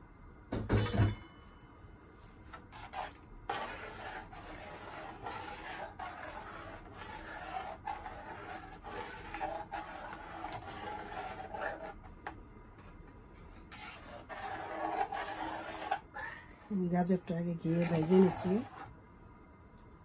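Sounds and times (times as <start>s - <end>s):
metal spatula scraping pot: 2.7s - 12.3s, 13.7s - 16.6s, 17.6s - 18.9s.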